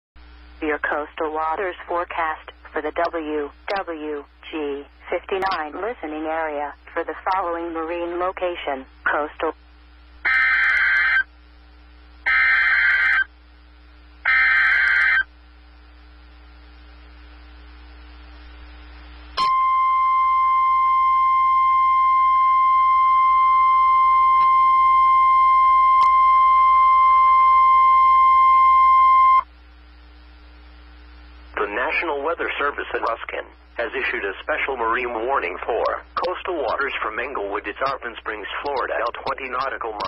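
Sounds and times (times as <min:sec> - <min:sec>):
steady warning alarm tone: 0:10.3 - 0:11.3, 0:12.2 - 0:13.3, 0:14.2 - 0:15.3, 0:19.4 - 0:29.5.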